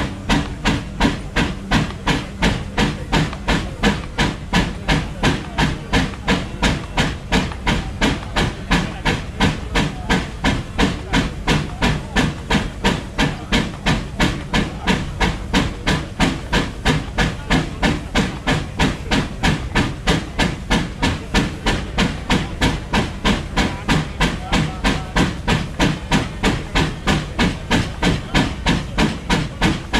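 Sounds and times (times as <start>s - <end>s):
steam engine exhaust beats: 0.0s - 29.9s
steam hissing: 0.0s - 29.9s.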